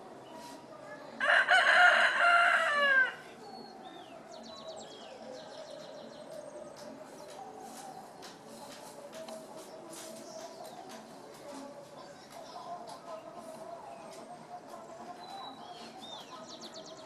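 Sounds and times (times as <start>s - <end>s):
rooster crowing: 1.2s - 3.2s.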